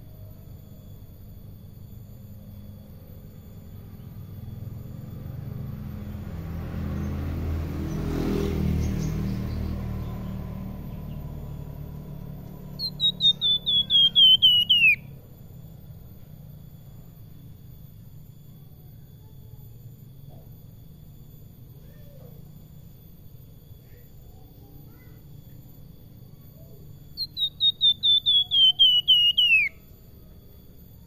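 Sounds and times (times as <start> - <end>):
songbird whistling: 12.2 - 15.2, 26.6 - 29.9.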